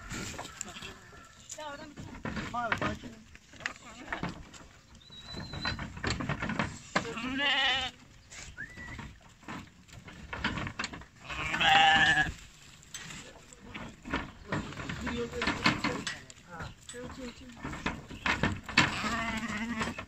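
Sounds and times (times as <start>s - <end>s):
hooves on wooden floor: 0.0s - 20.0s
lambs bleating: 7.1s - 8.0s, 11.2s - 12.3s, 18.9s - 20.0s.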